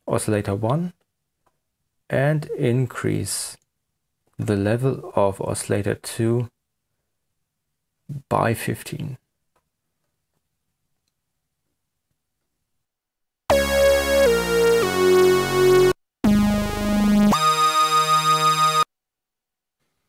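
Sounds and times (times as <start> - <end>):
synth lead phrase: 13.5 - 18.9.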